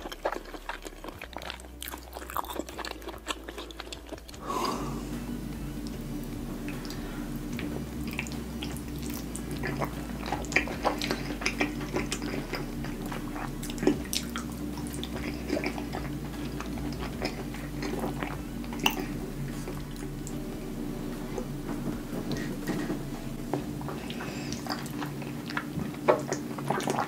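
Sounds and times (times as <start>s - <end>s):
sauce squelching: 0.0s - 27.0s
steady low hum: 0.0s - 27.0s
lips smacking: 6.6s - 20.4s.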